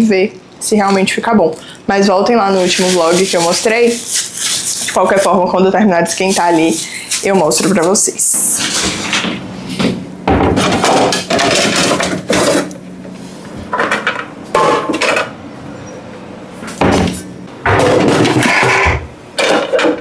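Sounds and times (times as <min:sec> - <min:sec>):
steady low hum: 0:00.0 - 0:19.9
groceries rustling and clattering: 0:00.6 - 0:15.3.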